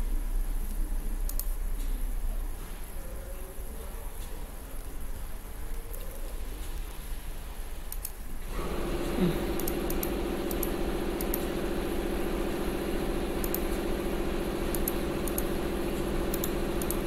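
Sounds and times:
steady machine hum: 0.0 - 17.0
light clicks: 0.7 - 2.0, 7.9 - 8.2.

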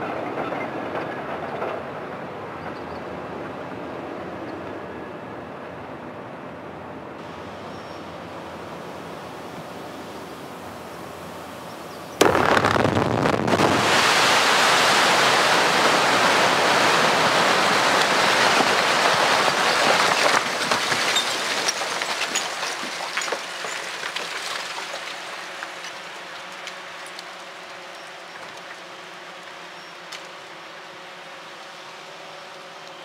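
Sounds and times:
rock blast bang: 12.2 - 14.4
rush of flying rock: 12.2 - 25.5.

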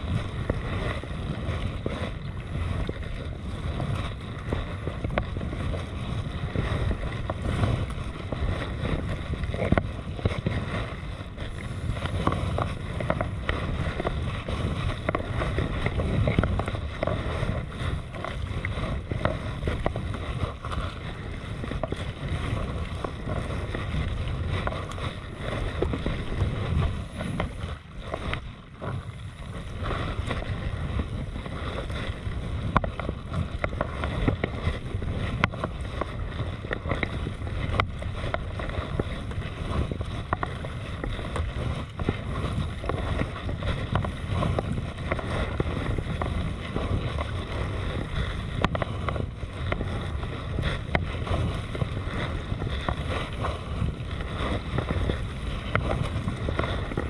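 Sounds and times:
paddle blades splashing: 0.0 - 57.0
water slapping against hull: 0.0 - 57.0
wind noise on microphone: 0.0 - 57.0.

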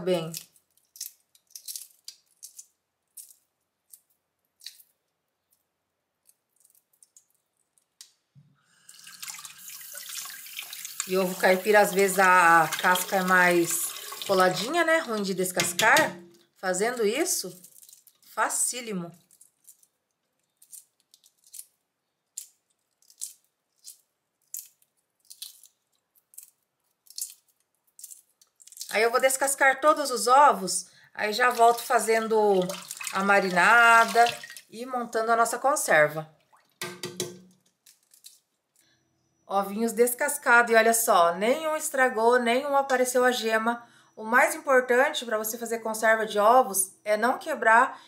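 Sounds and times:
eggshell crackling: 0.0 - 8.3, 8.9 - 18.4, 19.2 - 29.6, 31.2 - 35.1, 36.4 - 38.7.

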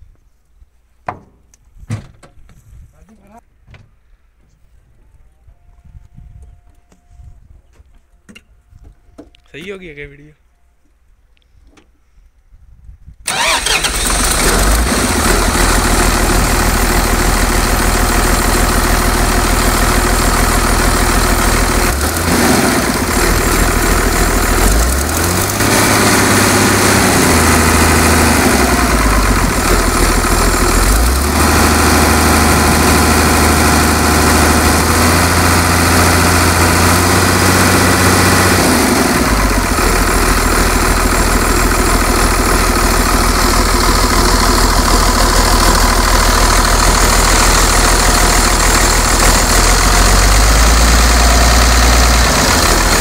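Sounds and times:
diesel engine starting and revving: 13.2 - 53.0.

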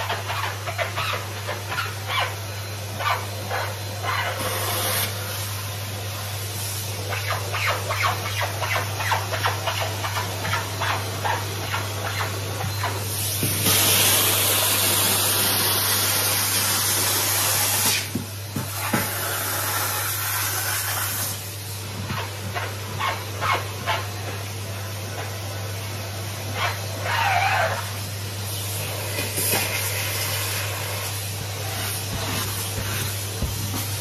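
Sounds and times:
vacuum cleaner suction hiss: 3.8 - 9.1, 11.6 - 22.2, 26.5 - 34.0
wand knocking on stairs: 32.1 - 34.0.

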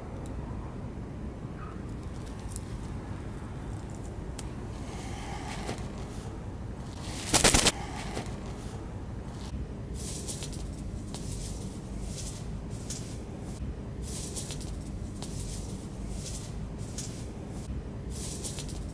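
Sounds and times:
bird struggling in netting: 3.8 - 10.5.

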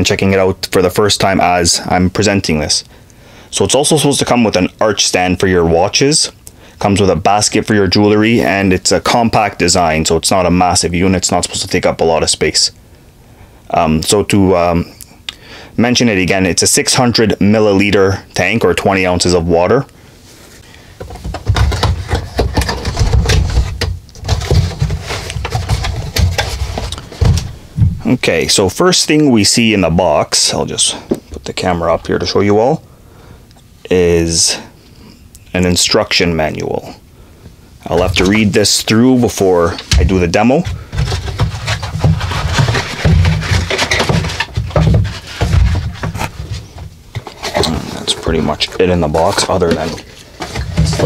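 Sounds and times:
dull thumps of box handling: 21.0 - 28.1, 39.9 - 47.8
low bumps: 21.1 - 28.2
cardboard flaps crackling: 39.6 - 51.0.

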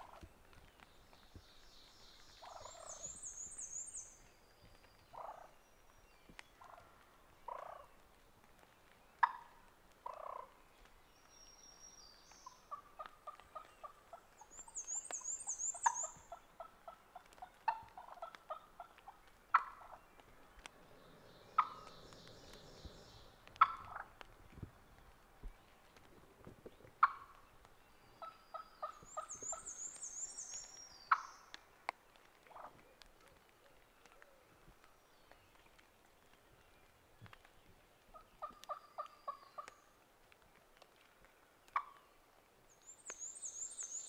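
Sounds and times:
turkey clucking: 9.2 - 10.5, 15.8 - 20.0, 21.6 - 21.9, 23.6 - 24.1, 27.0 - 27.4, 41.8 - 42.0.

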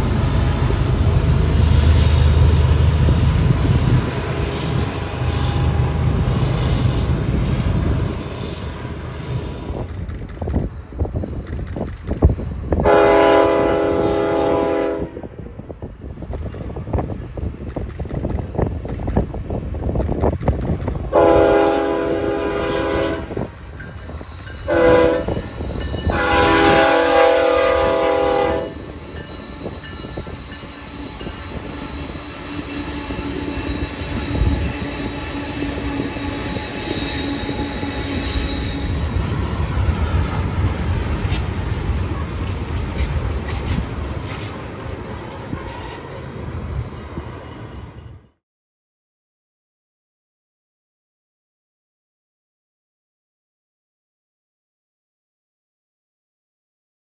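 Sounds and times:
freight train rumbling past: 0.0 - 48.4
locomotive air horn blasts: 12.8 - 15.3, 21.1 - 23.5, 24.7 - 28.8.

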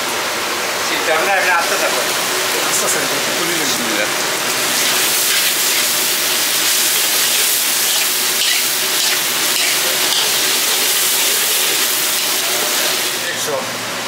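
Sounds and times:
onions sizzling in hot oil: 1.0 - 13.5
metal ladle stirring in wok: 4.8 - 12.4.

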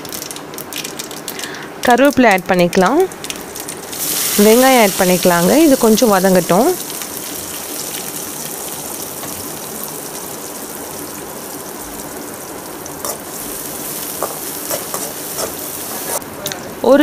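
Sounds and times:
onions sizzling in hot oil: 0.0 - 16.3
spatula stirring: 13.0 - 16.2.

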